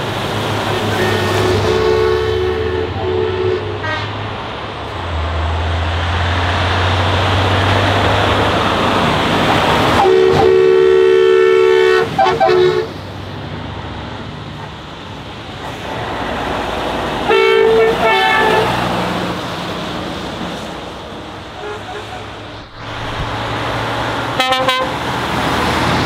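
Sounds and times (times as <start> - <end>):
truck engines passing: 0.0 - 26.0
two-note horn blasts: 10.0 - 12.9, 24.4 - 25.0.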